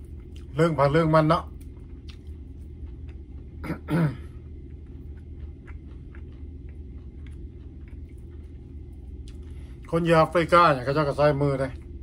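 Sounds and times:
person chewing food: 0.0s - 0.6s, 1.4s - 9.9s
low hum: 0.0s - 12.0s.

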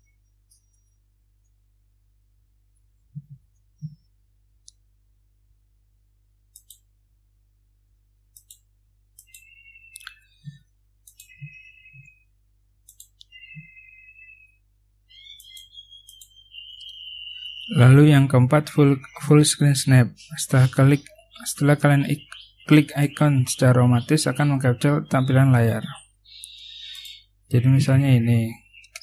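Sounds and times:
computer mouse clicks: 6.5s - 6.9s, 8.3s - 12.1s, 12.8s - 13.7s, 15.2s - 17.0s.

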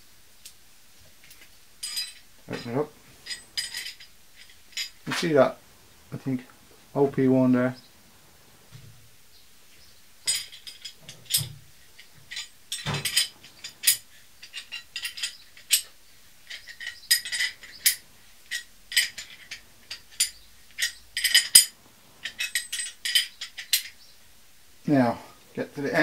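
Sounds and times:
metal tool clicking and clinking: 1.3s - 5.3s, 10.2s - 24.0s.

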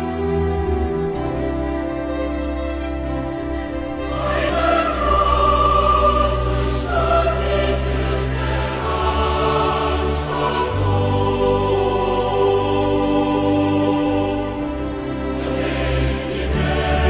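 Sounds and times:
choir singing held notes: 3.8s - 17.0s.

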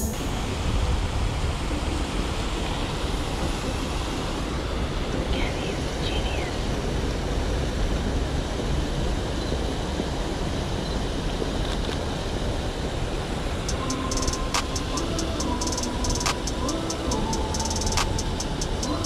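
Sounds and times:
wind rumble on microphone: 0.0s - 14.2s
sharp clicks: 13.7s - 19.0s.

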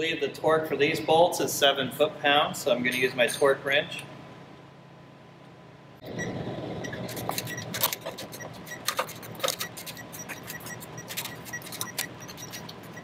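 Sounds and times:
ratcheting torque wrench clicking: 7.1s - 13.0s.

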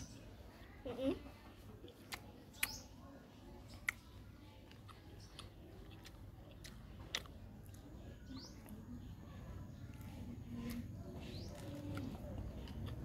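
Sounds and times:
person chewing fruit: 1.8s - 2.8s, 3.8s - 8.9s, 9.8s - 13.0s
mouth clicks: 1.9s - 2.9s.

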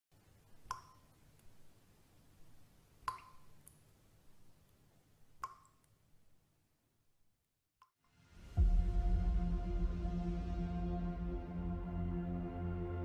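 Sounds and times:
low hum: 8.2s - 13.0s.

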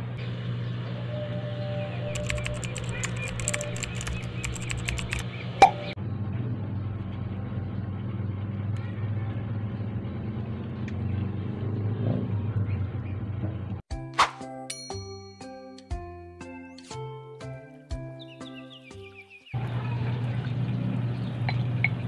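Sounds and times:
low background hum: 0.0s - 9.0s
light clicks: 2.1s - 5.2s
sharp click: 2.1s - 5.8s.

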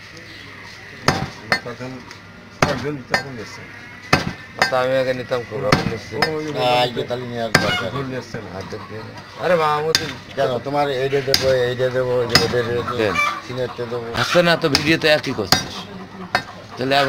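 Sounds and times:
cleaver chopping meat on wood: 1.0s - 1.7s, 2.6s - 3.3s, 4.1s - 4.8s, 5.7s - 6.4s, 7.5s - 7.7s, 12.3s - 12.6s, 14.7s - 15.8s.

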